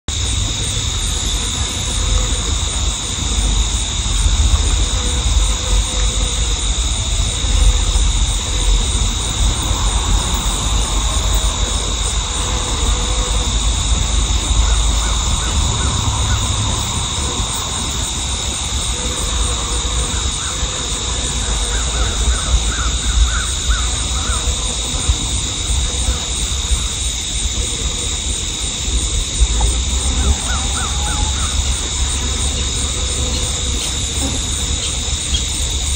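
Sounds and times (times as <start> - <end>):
insect chorus: 0.1 - 35.9
wind rumble on microphone: 0.1 - 35.9
bird calls: 30.0 - 35.7.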